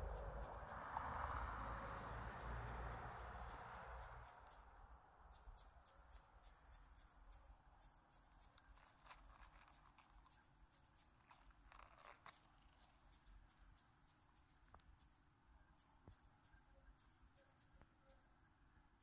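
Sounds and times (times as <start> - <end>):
butterfly wings clicking and rustling: 0.0 - 18.4.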